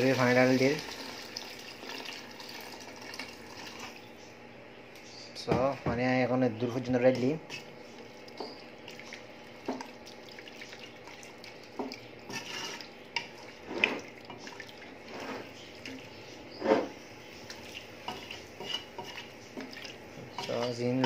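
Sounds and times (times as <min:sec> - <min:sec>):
liquid sloshing in pot: 0:07.5 - 0:21.0
spoon knocking and scraping pot: 0:11.8 - 0:14.5, 0:16.6 - 0:21.0.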